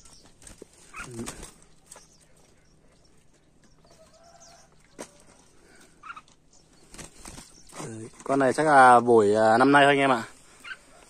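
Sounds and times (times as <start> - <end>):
faint animal calls: 0.8 - 1.6, 3.9 - 6.5, 10.4 - 11.0.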